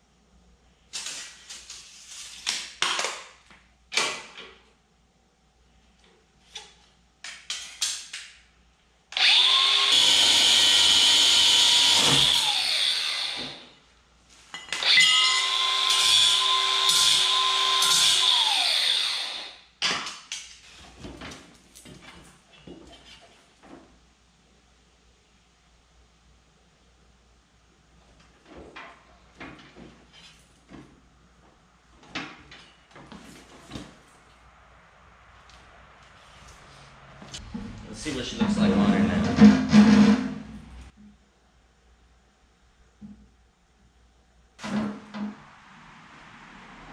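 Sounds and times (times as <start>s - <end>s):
angle grinder cutting steel: 9.2s - 13.7s, 14.8s - 19.6s.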